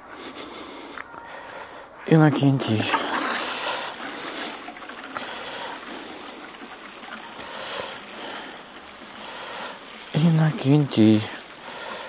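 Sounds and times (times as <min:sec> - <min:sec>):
water pouring from watering can: 0:02.6 - 0:12.0.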